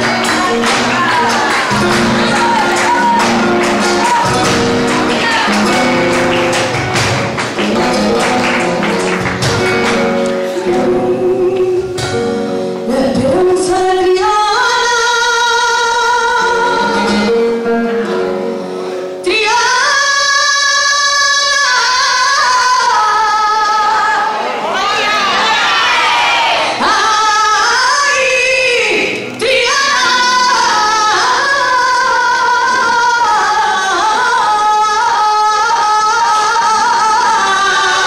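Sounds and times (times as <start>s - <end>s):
woman singing: 0.0s - 6.5s, 7.7s - 18.5s, 19.2s - 24.4s, 26.6s - 38.0s
hand-clapping: 0.0s - 10.5s
guitar playing: 0.0s - 38.0s.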